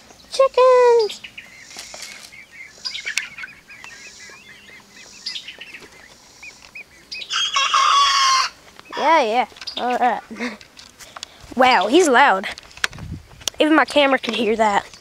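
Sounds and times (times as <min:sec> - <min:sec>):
chickens chirping and clucking: 0:00.0 - 0:15.0
rooster crowing: 0:07.2 - 0:08.6.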